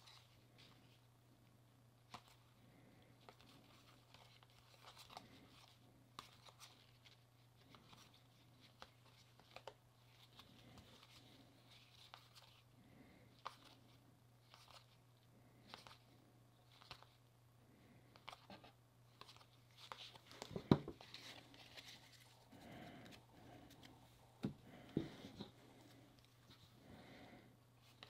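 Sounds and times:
low steady hum: 0:00.0 - 0:28.0
trading cards clicking and rustling: 0:16.6 - 0:17.2.

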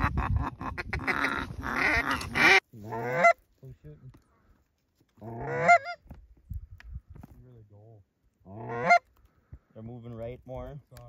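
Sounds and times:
goose honking and clucking: 0:00.0 - 0:03.5, 0:05.2 - 0:06.0, 0:08.5 - 0:09.1.

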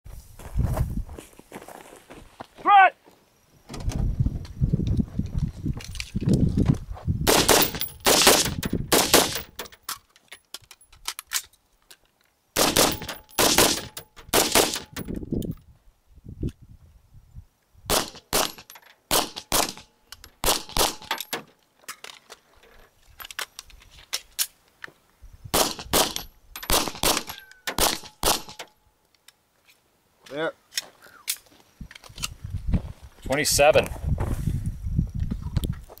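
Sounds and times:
rifle gunshots: 0:07.3 - 0:09.5, 0:12.6 - 0:15.0, 0:17.9 - 0:19.8, 0:20.4 - 0:21.1, 0:25.5 - 0:28.6
pistol gunshots: 0:07.3 - 0:09.6, 0:12.6 - 0:15.0, 0:17.9 - 0:21.1, 0:25.5 - 0:28.6.

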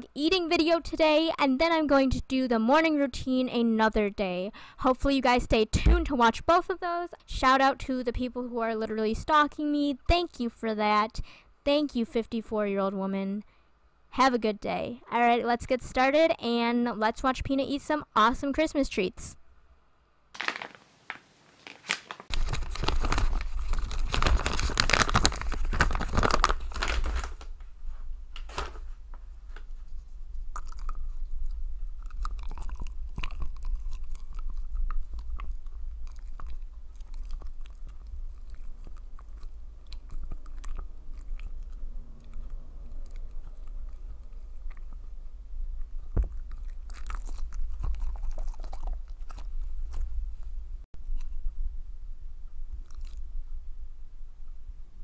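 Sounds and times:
dog chewing and crunching: 0:30.4 - 0:50.5, 0:52.8 - 0:53.3
teeth clicking: 0:30.6 - 0:45.0.

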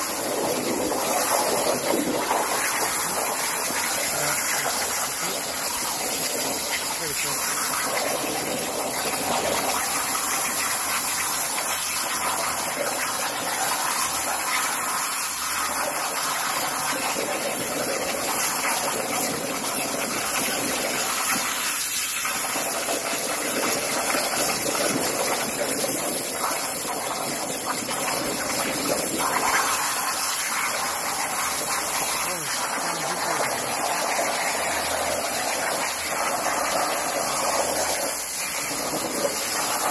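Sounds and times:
water gushing: 0:00.0 - 0:39.9
plasma torch hissing: 0:01.0 - 0:07.7.

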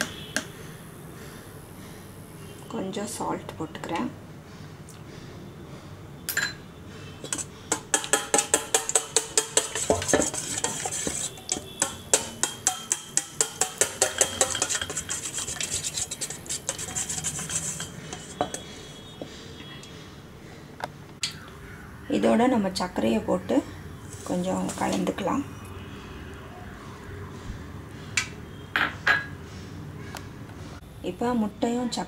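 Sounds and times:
whisk clicking against a metal bowl: 0:07.2 - 0:18.7.

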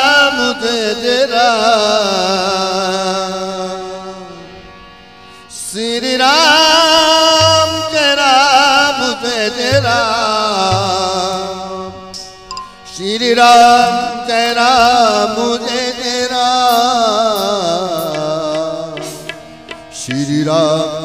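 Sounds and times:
steady drone: 0:09.6 - 0:13.1
low drum strokes: 0:09.7 - 0:12.3.

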